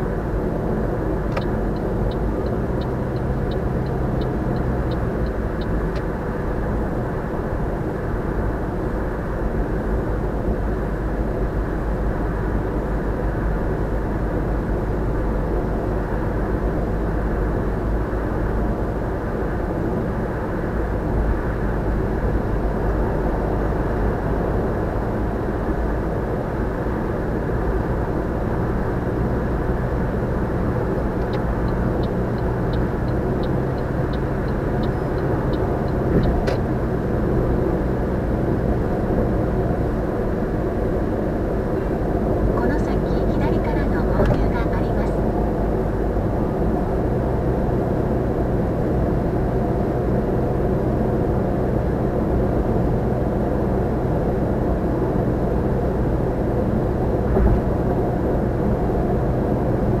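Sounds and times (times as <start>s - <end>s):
tyre and road noise in car: 0.0s - 60.0s
faint light ticks: 1.3s - 6.1s.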